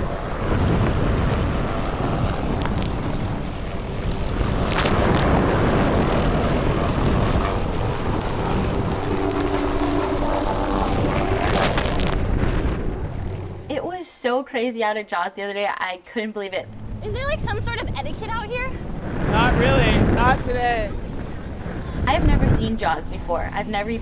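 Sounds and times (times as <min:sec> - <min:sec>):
helicopter rotor and engine: 0:00.0 - 0:13.7, 0:16.7 - 0:24.0
surf of big waves breaking: 0:00.0 - 0:13.7, 0:16.7 - 0:24.0
wind: 0:00.0 - 0:14.7, 0:15.6 - 0:24.0.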